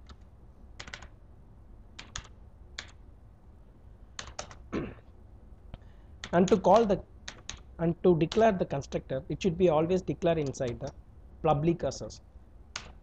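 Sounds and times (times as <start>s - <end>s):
keyboard typing: 0.0s - 0.2s, 0.8s - 1.1s, 2.0s - 3.0s, 4.2s - 4.7s, 6.2s - 7.7s, 8.3s - 8.5s, 10.3s - 11.0s, 12.7s - 13.0s.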